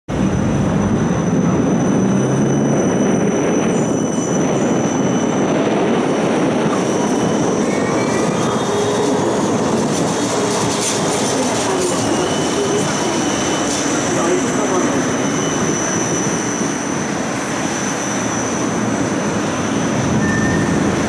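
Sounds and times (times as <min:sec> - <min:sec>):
electric trams humming: 0:00.1 - 0:21.0
faint whistling tones: 0:20.2 - 0:20.8.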